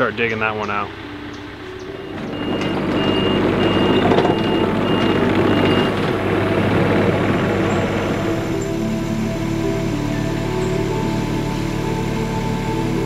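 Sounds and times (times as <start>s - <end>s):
diesel engine running: 0.0s - 13.0s
backup alarm beeping: 0.9s - 8.9s.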